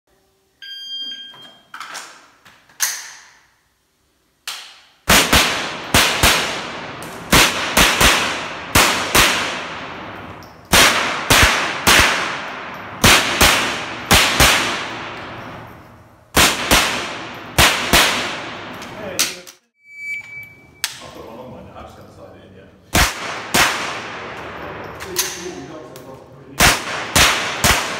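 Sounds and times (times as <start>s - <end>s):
shot timer beep: 0.6s - 1.6s
rifle shots with room echo: 4.5s - 19.3s, 22.9s - 25.6s, 26.6s - 27.9s.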